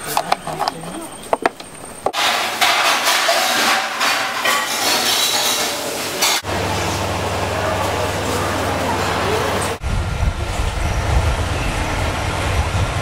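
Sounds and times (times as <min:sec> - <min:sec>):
clatter of dishes and utensils: 0:02.1 - 0:06.5.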